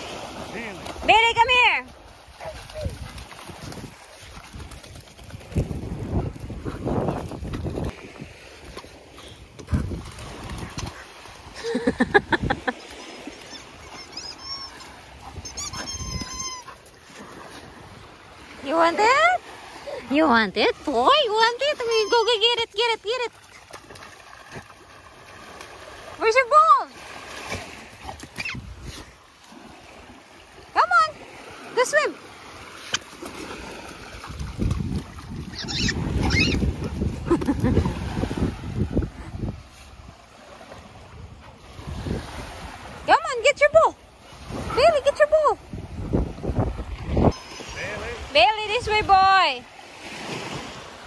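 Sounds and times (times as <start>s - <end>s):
paws splashing in water: 0.0s - 51.0s
small waves lapping: 0.0s - 51.0s
wind buffeting microphone: 2.4s - 12.6s, 33.5s - 40.1s, 41.0s - 43.1s, 43.8s - 49.5s
puppy high-pitched calls: 12.8s - 16.9s, 21.7s - 22.4s, 28.4s - 28.6s, 35.5s - 36.8s.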